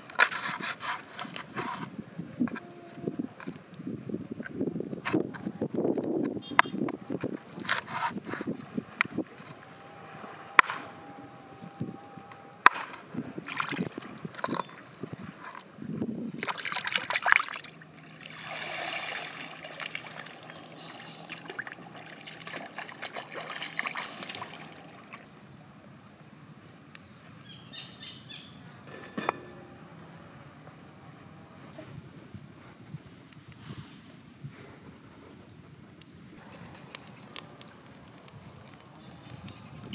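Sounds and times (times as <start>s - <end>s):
water sloshing and trickling: 13.4s - 15.7s, 16.3s - 25.3s, 36.4s - 39.9s.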